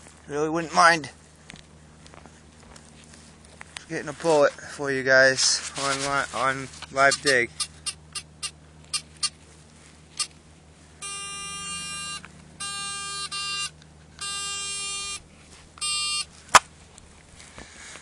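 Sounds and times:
metal detector buzzing: 0:06.9 - 0:09.4, 0:10.2 - 0:10.4, 0:11.0 - 0:16.6.

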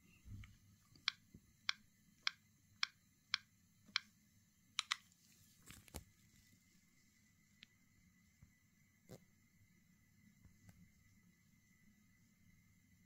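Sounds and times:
phone keypad clicks: 0:04.8 - 0:05.0.

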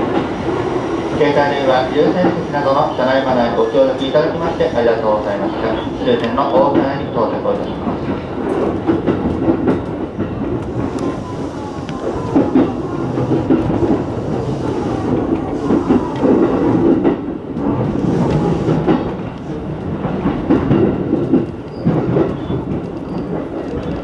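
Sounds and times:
train wheels clattering over rail joints: 0:00.0 - 0:24.0.

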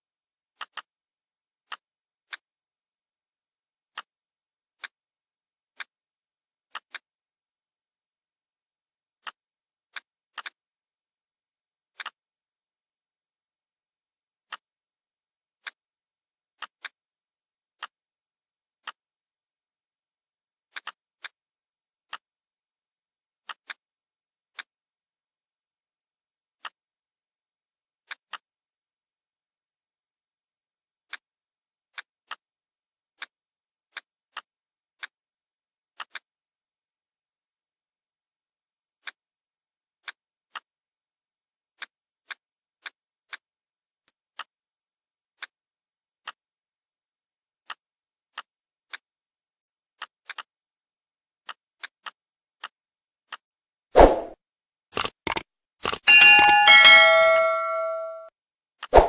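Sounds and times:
computer mouse clicking: 0:55.0 - 0:56.1.

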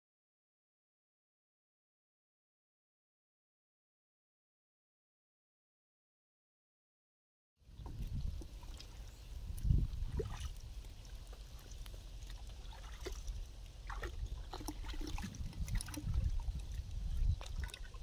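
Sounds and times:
small splashes and drips: 0:07.7 - 0:18.0.

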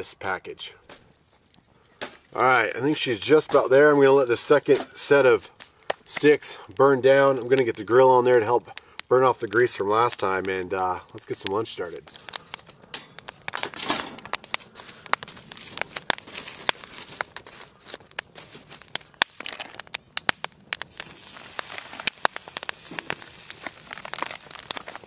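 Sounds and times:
wood fire crackling and popping: 0:00.0 - 0:25.0
metal grill grate scraping: 0:12.9 - 0:14.3.

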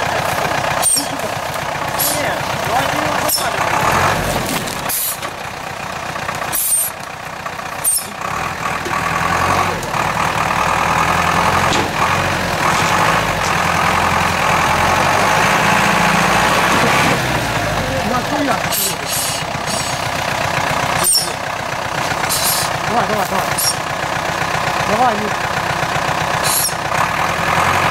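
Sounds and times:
truck engine running: 0:00.0 - 0:27.9
short hisses: 0:19.0 - 0:20.0, 0:22.2 - 0:22.7.

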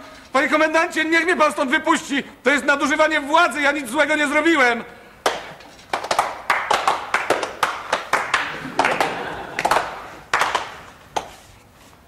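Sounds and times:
men clapping hands: 0:05.2 - 0:11.4.

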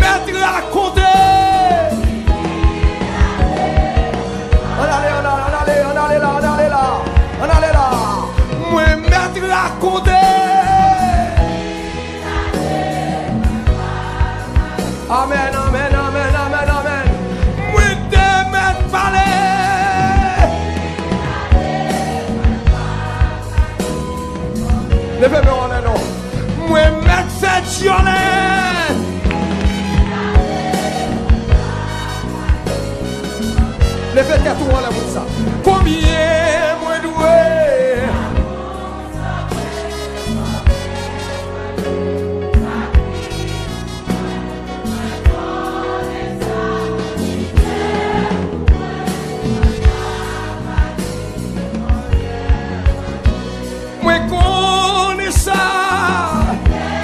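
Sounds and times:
choir singing held notes: 0:00.0 - 0:57.0
gospel band with steady drum beat: 0:00.0 - 0:57.0
instrumental backing: 0:00.0 - 0:57.0.

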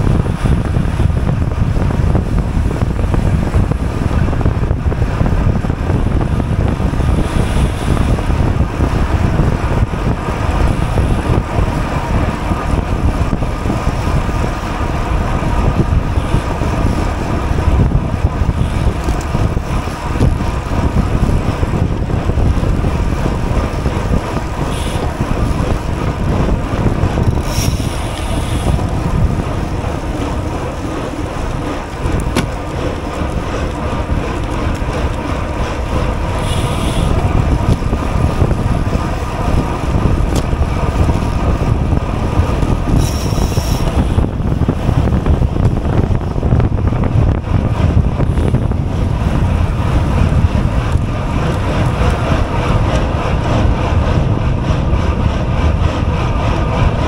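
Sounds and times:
road and tyre rumble: 0:00.0 - 0:57.0
wind rushing over microphone: 0:00.0 - 0:57.0.

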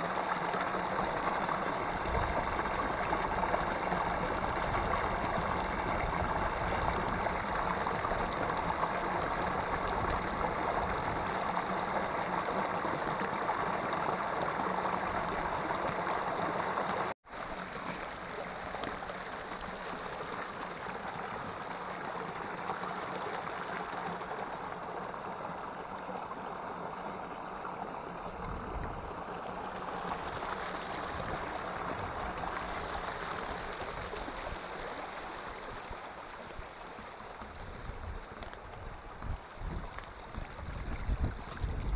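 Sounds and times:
stream running over rock: 0:00.0 - 0:41.9.

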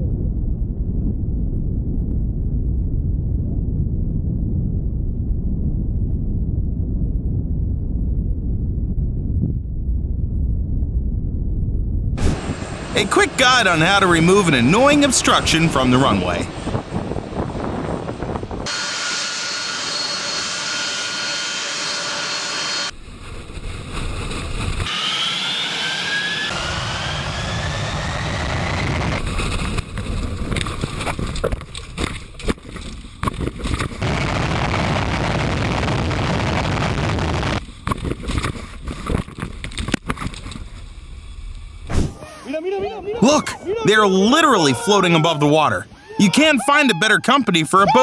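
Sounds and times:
jet blast rushing: 0:12.2 - 0:30.9, 0:34.0 - 0:37.7
jet engines whining: 0:12.2 - 0:30.9, 0:34.0 - 0:37.6.

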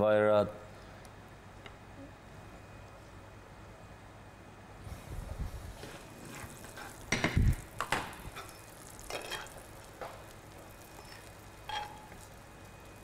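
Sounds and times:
utensil scraping a frying pan: 0:05.7 - 0:12.3
utensil clattering on a plate: 0:11.0 - 0:12.1.

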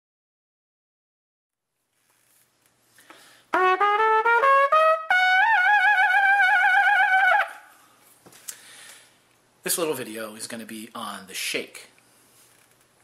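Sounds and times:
trumpet playing: 0:03.5 - 0:07.7.

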